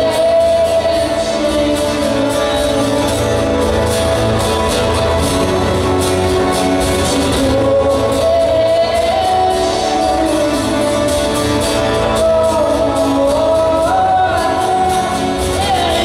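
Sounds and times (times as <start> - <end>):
strummed acoustic guitar: 0.0 - 16.0.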